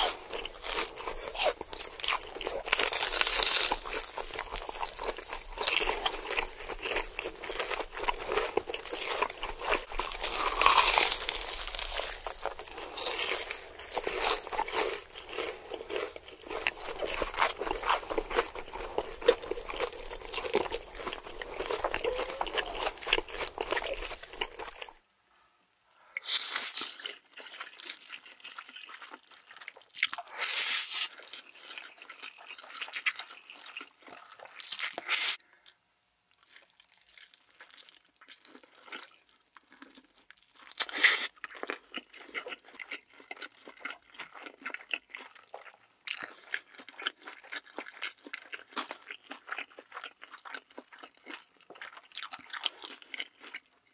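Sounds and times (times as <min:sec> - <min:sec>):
crunching and chewing food: 0:00.0 - 0:25.0, 0:26.1 - 0:53.9
eating noodles: 0:00.0 - 0:25.0.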